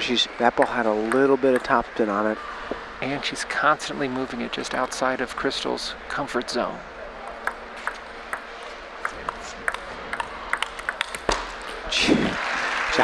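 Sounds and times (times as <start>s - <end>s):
crowd noise: 0.0s - 13.0s
table tennis ball clicking: 0.6s - 1.8s, 7.3s - 11.8s.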